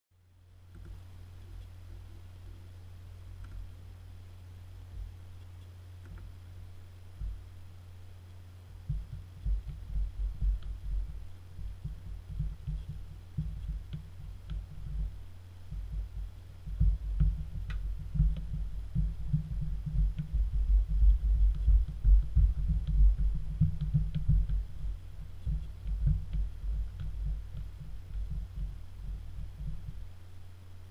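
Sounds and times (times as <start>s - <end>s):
low electrical hum: 0.1s - 30.9s
dull thumps of silicone buttons: 8.8s - 30.1s.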